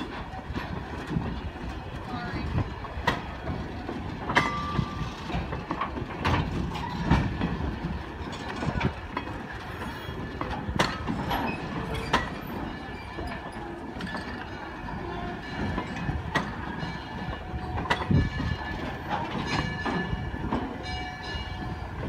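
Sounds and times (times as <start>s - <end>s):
train wheels rumbling on rails: 0.0s - 22.0s
wheels clanking and knocking: 0.0s - 22.0s
short wheel squeal: 11.2s - 14.4s.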